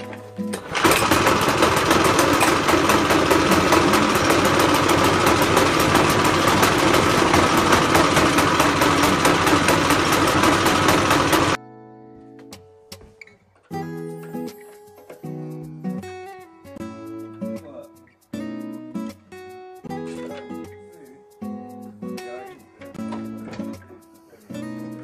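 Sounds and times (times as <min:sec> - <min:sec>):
lawn mower petrol engine running: 0:00.0 - 0:11.6.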